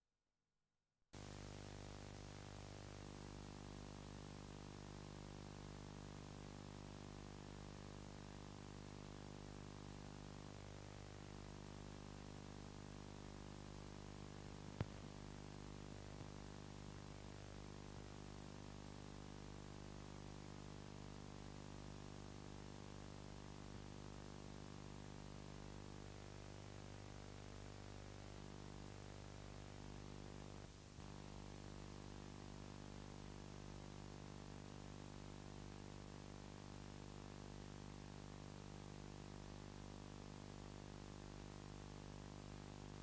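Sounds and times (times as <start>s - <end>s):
faint electrical hum: 1.2s - 43.0s
tape hiss: 12.2s - 31.8s.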